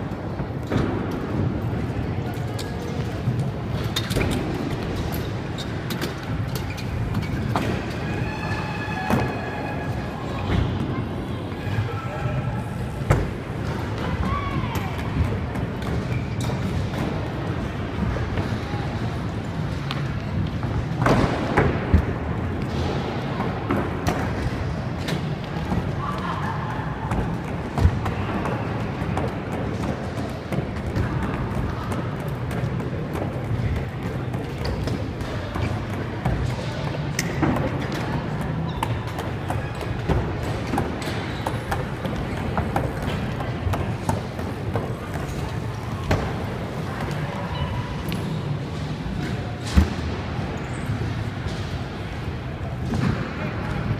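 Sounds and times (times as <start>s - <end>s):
scooters clacking on ramps: 12.7s - 53.9s.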